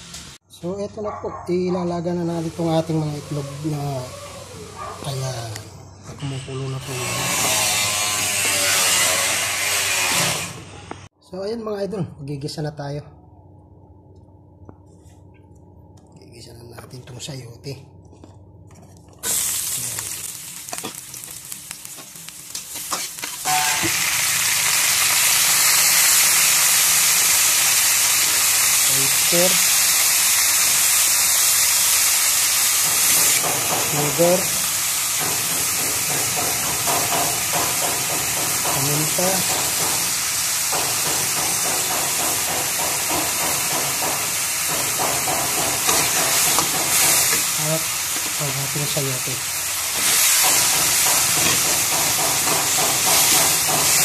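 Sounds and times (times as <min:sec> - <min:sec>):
food sizzling in hot oil: 0:19.2 - 0:54.0.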